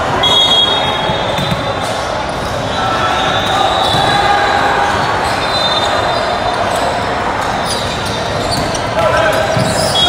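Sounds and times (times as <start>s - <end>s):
crowded hall din: 0.0s - 10.0s
shoe squeaks: 5.1s - 7.0s, 7.6s - 10.0s.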